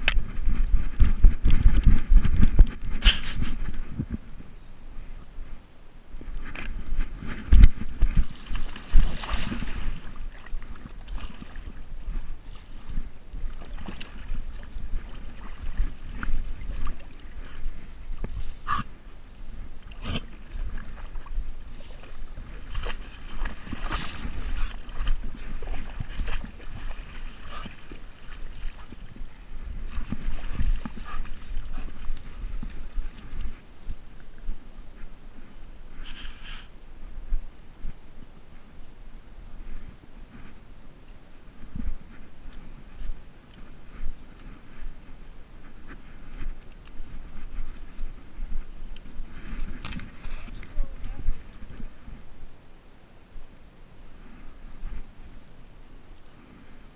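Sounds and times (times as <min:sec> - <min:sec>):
wind and movement rumble: 0:00.0 - 0:56.9
camera rubbing: 0:01.6 - 0:03.8
dog splashing in water: 0:08.3 - 0:10.5, 0:20.7 - 0:29.1.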